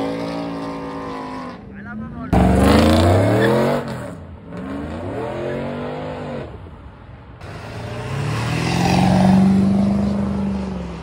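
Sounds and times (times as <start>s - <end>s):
vehicle engine revving: 2.2s - 6.4s.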